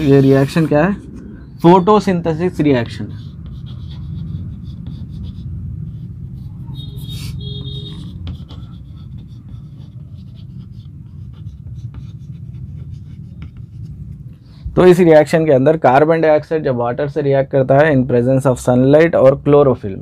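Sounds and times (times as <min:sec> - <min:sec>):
chalk scratching on chalkboard: 0:00.0 - 0:01.2, 0:02.5 - 0:14.2
steady low hum: 0:00.0 - 0:16.8.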